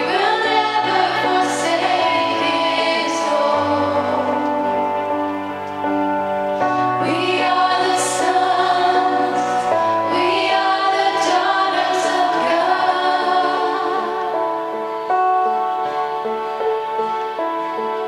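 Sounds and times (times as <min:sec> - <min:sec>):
voices singing: 0:00.0 - 0:05.4, 0:06.8 - 0:15.0
bass: 0:00.0 - 0:15.4
keyboard chords: 0:00.0 - 0:18.0.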